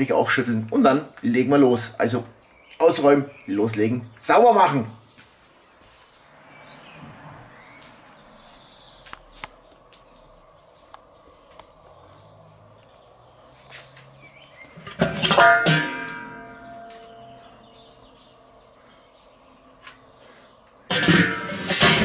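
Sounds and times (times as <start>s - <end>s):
metal grill lid clanking: 14.8s - 17.6s, 20.9s - 22.0s.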